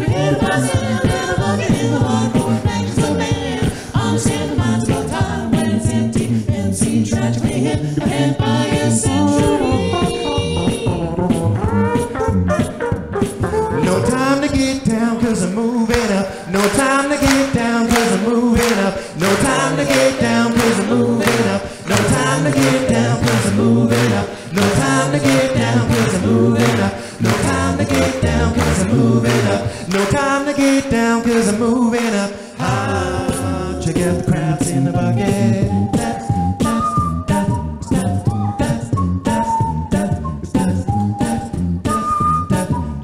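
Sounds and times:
men singing close harmonies: 0.0s - 10.6s, 13.8s - 36.3s
vocal percussion beat: 0.0s - 42.9s
sung bass line: 16.0s - 30.4s.

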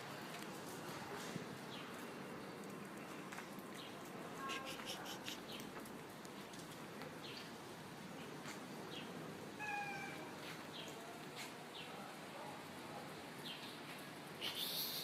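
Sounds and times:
faint background noise: 0.0s - 15.0s
cat meowing: 9.6s - 10.3s.

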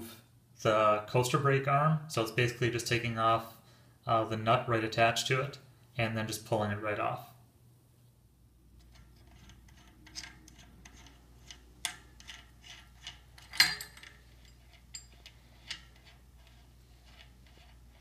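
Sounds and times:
small metallic clicks: 8.8s - 18.0s.

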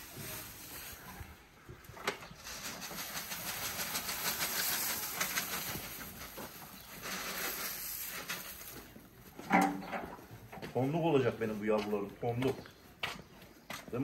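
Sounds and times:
dry straw rustling: 0.0s - 9.4s.

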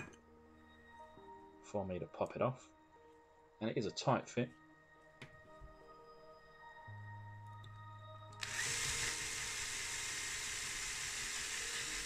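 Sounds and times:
cordless drill drilling into metal: 8.4s - 12.0s.

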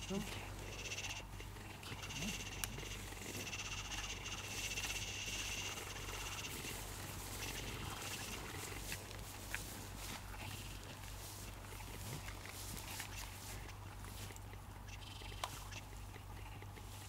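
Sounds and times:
low steady hum: 0.0s - 17.0s
pulsing animal calls chorus: 0.0s - 17.0s
faint clicks: 13.1s - 16.9s.

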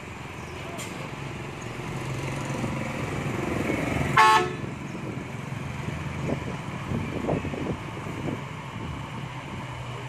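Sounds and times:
diesel truck engine running: 0.0s - 10.0s
truck horn toot: 4.2s - 4.7s.

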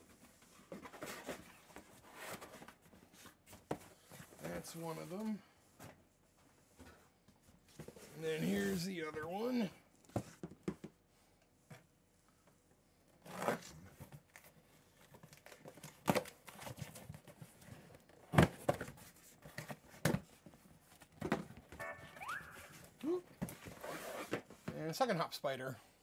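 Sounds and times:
cardboard boxes scraping: 0.7s - 3.3s, 7.9s - 9.0s, 23.5s - 24.6s.

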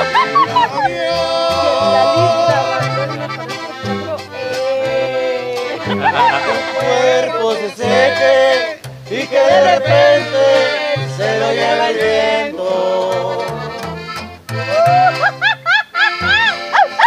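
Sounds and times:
high yelping calls: 0.0s - 4.5s, 14.8s - 17.0s
button accordion melody: 0.0s - 17.0s
plucked upright bass: 0.0s - 17.0s
strummed twelve-string guitar: 0.0s - 17.0s.

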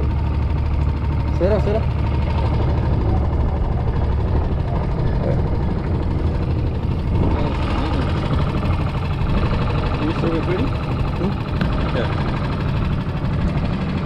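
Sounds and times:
wind buffeting microphone: 1.9s - 12.3s.

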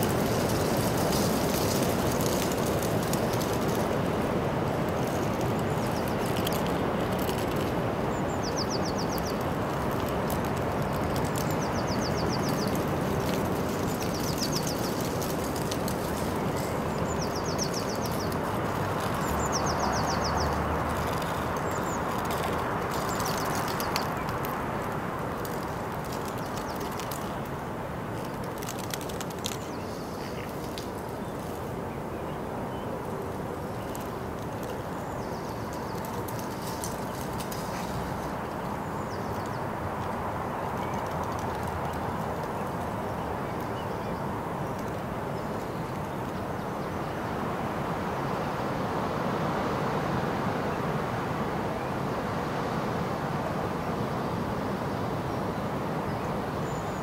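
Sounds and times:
steady rushing noise: 0.0s - 43.7s.

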